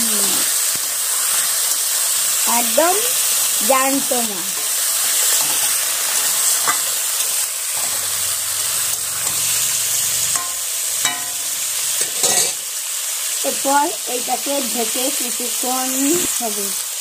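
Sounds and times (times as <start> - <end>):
fish sizzling in hot oil: 0.0 - 17.0
spatula scraping and tapping pan: 4.6 - 8.1, 10.3 - 12.6.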